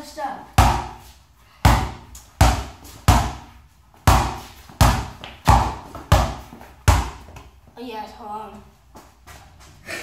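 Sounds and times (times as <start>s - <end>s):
basketball bouncing on concrete: 0.5s - 7.5s.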